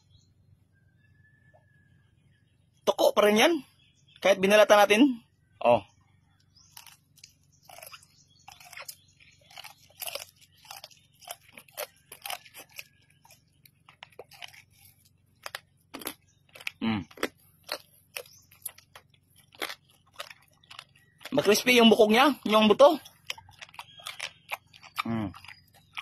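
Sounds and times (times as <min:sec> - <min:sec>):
wet chewing with bones crunching: 0:06.2 - 0:26.0.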